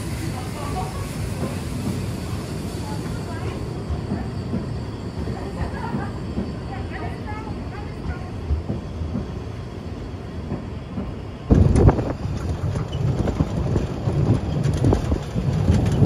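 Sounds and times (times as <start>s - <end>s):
steam train rumbling: 0.0s - 16.0s.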